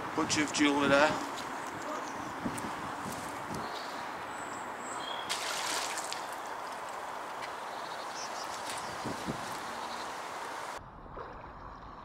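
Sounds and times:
water trickling and splashing: 0:04.9 - 0:12.0.

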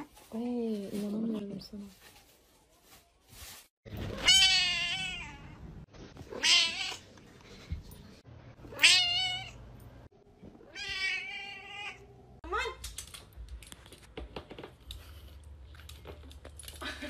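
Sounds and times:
cat meowing: 0:04.1 - 0:05.6, 0:08.7 - 0:09.6, 0:10.7 - 0:12.1.

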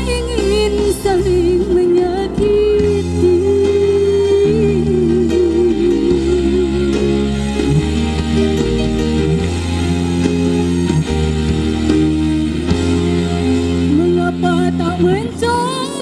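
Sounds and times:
bass guitar: 0:00.0 - 0:16.0
drum kit: 0:00.0 - 0:16.0
electric guitar: 0:00.0 - 0:16.0
wavering melody line: 0:03.2 - 0:16.0.

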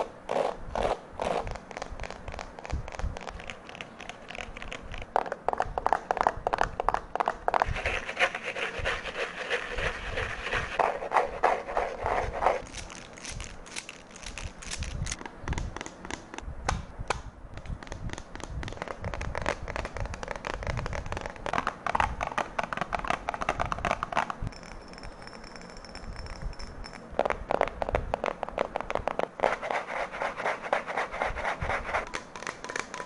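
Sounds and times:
fingertips tapping on objects: 0:15.1 - 0:16.8, 0:17.5 - 0:33.0.

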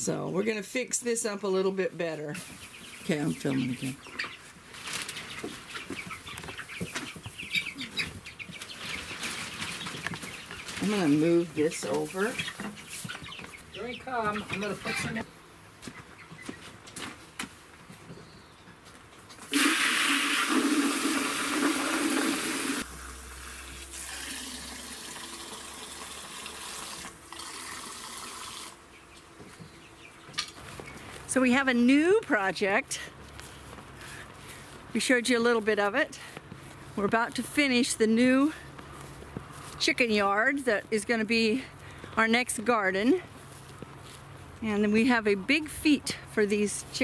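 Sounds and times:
chicks cheeping: 0:01.4 - 0:16.9, 0:28.8 - 0:45.1
hose water splashing into plastic: 0:19.5 - 0:28.8.

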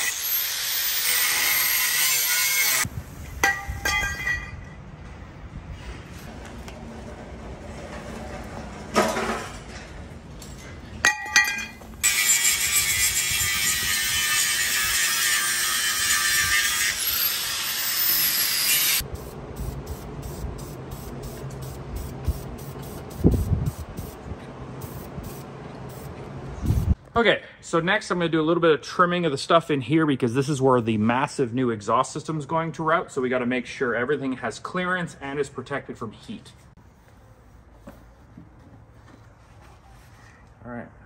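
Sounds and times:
power tool hissing: 0:00.0 - 0:03.4
power tool cutting steel: 0:00.0 - 0:03.6, 0:12.0 - 0:19.0
sharp metal clanks: 0:03.4 - 0:04.8, 0:10.5 - 0:12.2.

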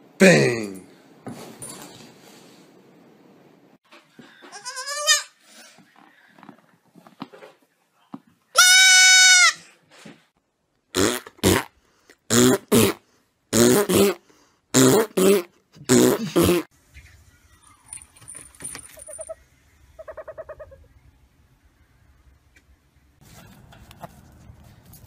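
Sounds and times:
goat kid bleating: 0:04.5 - 0:05.4, 0:08.6 - 0:09.6.

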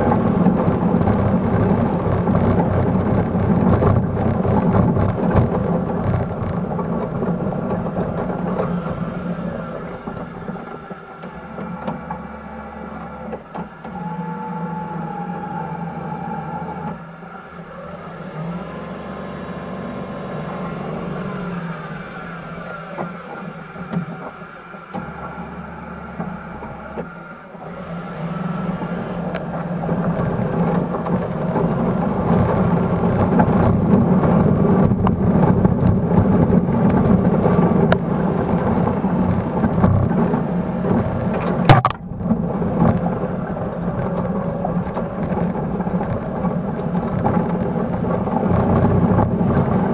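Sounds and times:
snow crackling against plow blade: 0:00.0 - 0:49.9
truck engine running: 0:00.0 - 0:49.9.

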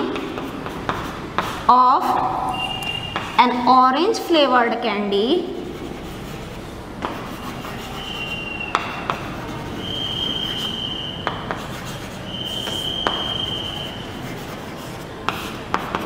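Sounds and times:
chalk tapping on board: 0:00.0 - 0:01.6, 0:07.0 - 0:09.6, 0:11.2 - 0:16.0
chalk squeaking on chalkboard: 0:05.5 - 0:16.0.

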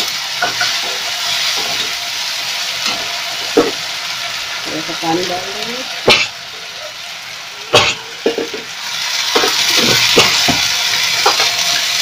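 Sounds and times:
loud sizzle of water in oil: 0:00.0 - 0:12.0
spices frying in oil: 0:00.0 - 0:12.0
spoon knocking against pan: 0:06.1 - 0:06.3.

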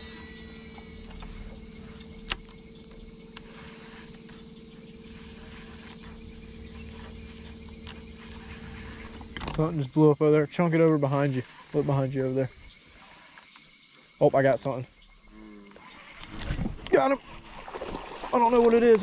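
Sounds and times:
low hum: 0:00.0 - 0:13.3.

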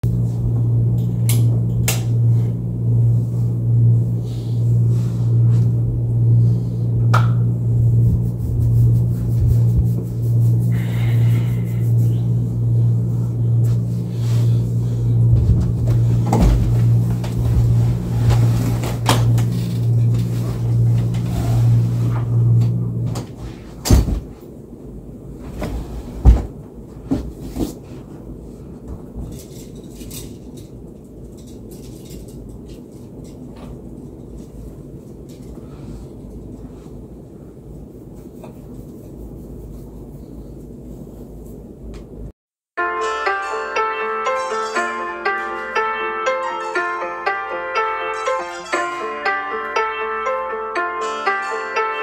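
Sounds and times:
steady low hum: 0:00.0 - 0:42.3
closet door knocks and thumps: 0:23.9 - 0:24.3.

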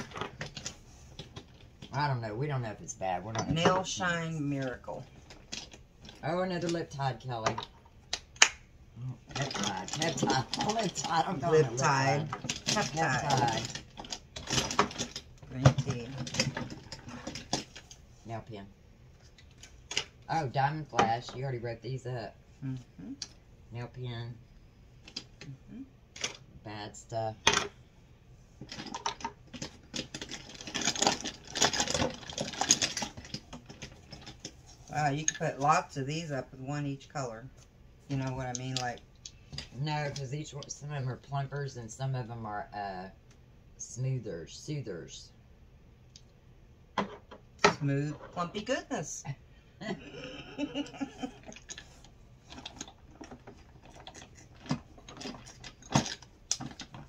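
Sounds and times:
plastic clicks and rustles: 0:00.0 - 0:01.9, 0:04.6 - 0:06.8, 0:09.3 - 0:18.0, 0:28.6 - 0:34.6, 0:51.0 - 0:57.0
hands rummaging through small items: 0:09.2 - 0:18.0, 0:28.6 - 0:34.9, 0:51.0 - 0:57.0.

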